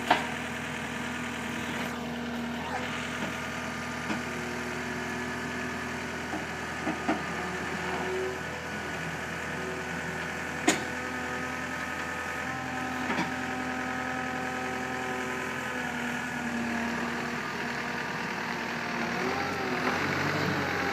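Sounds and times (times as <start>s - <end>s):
diesel engine running: 0.0s - 20.9s.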